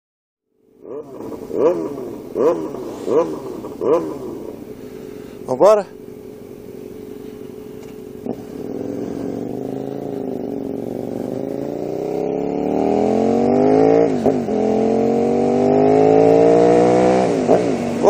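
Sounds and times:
motorcycle engine accelerating: 0:00.5 - 0:18.0.

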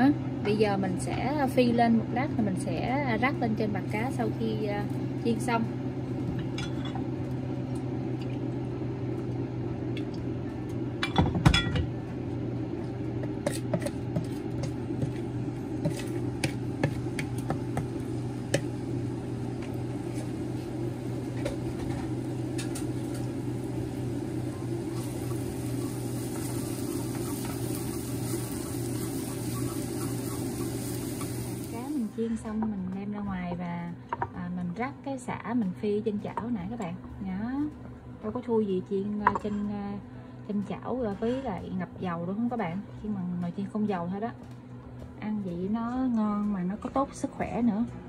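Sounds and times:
steady low hum: 0:00.0 - 0:48.0
faint high sizzle: 0:14.6 - 0:32.4.

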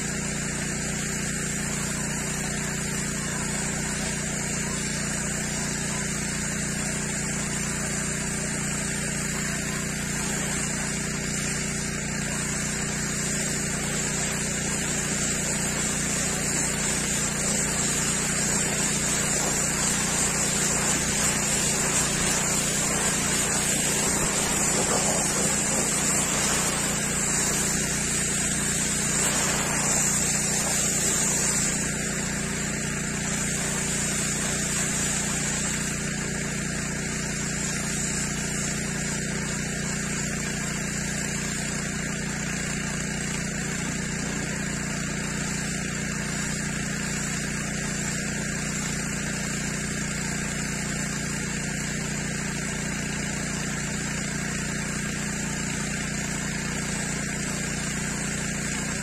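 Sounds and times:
pressure washer motor humming: 0:00.0 - 0:59.0
water jet hissing on pavement: 0:00.0 - 0:59.0.

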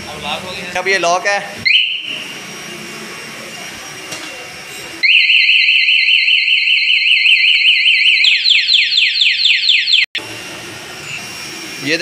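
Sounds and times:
motorcycle alarm siren: 0:01.6 - 0:02.8, 0:05.0 - 0:10.4.

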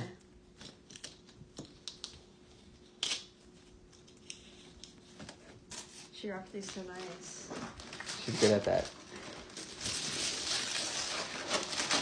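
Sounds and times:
wrapping paper crinkling: 0:06.6 - 0:12.0.

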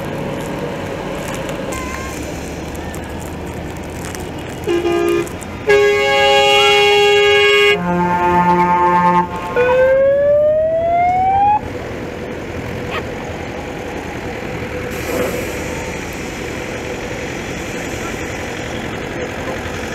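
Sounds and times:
fire engine siren rising: 0:01.7 - 0:03.9, 0:05.7 - 0:11.8
fire engine horn blasts: 0:04.4 - 0:10.2.

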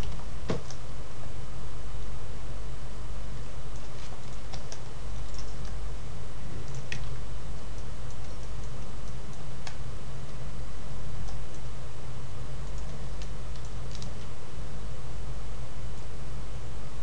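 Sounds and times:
low electrical hum: 0:00.0 - 0:17.0
mouse and keyboard clicks: 0:03.8 - 0:05.8, 0:12.7 - 0:14.3.

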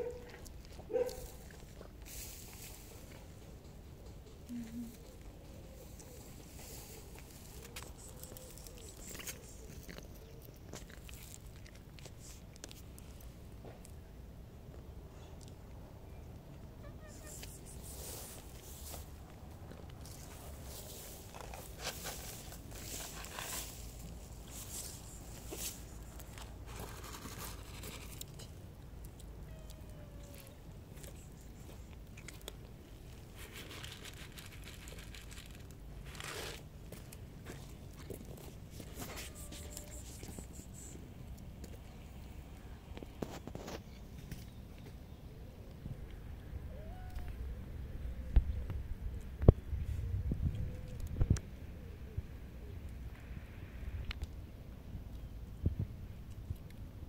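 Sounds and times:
cat crunching dry kibble: 0:00.2 - 0:02.5, 0:07.1 - 0:13.3, 0:19.3 - 0:29.3, 0:30.2 - 0:41.5
plastic bag crinkling: 0:33.2 - 0:36.7.

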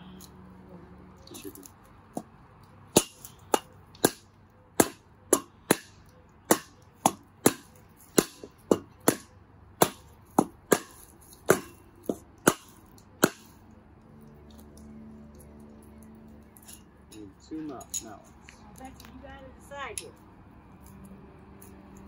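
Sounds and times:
mallet striking wooden block: 0:06.5 - 0:13.5.

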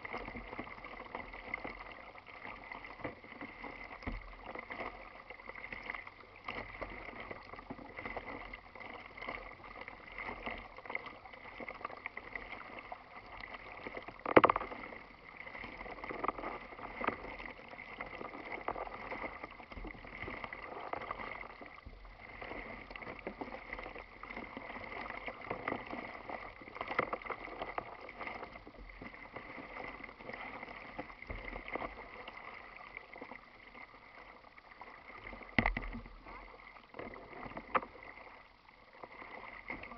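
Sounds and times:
water lapping against kayak hull: 0:00.0 - 0:39.9
sharp knock on kayak: 0:35.6 - 0:36.0.

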